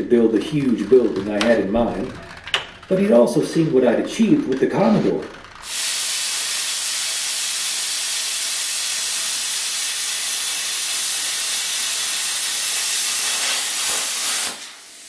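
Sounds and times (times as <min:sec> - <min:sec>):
plasma cutter hissing: 0:05.6 - 0:15.0.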